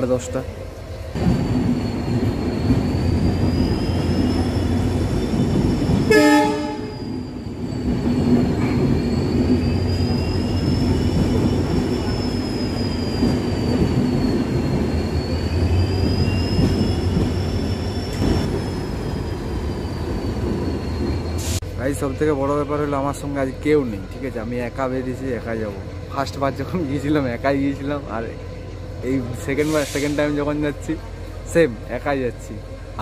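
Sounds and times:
train wheels rumbling on rails: 0.0 - 33.0
train horn blast: 6.1 - 7.0.

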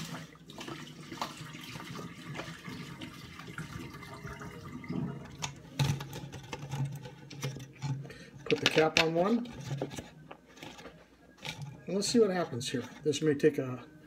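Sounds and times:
water splashing into a sink: 0.0 - 7.0.

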